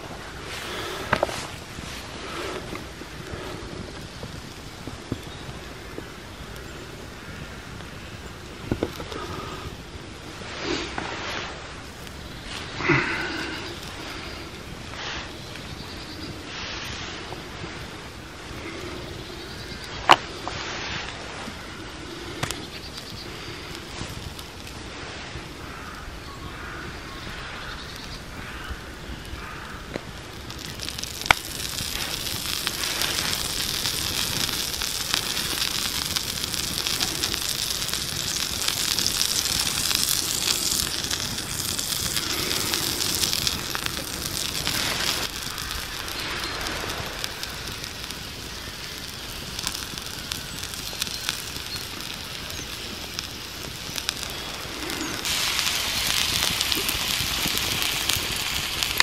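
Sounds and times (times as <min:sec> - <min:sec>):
oiled slate sizzling: 0:00.0 - 0:59.0
sharp fire crack: 0:00.0 - 0:59.0
wood fire crackling: 0:00.0 - 0:59.0.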